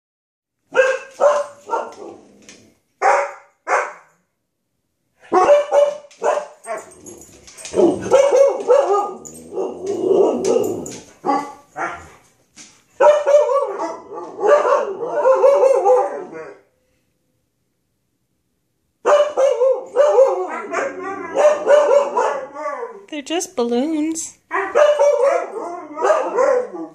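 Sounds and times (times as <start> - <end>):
dogs barking and howling: 0.7 - 4.0, 5.3 - 12.2, 13.0 - 16.7, 19.0 - 23.1, 24.5 - 26.9.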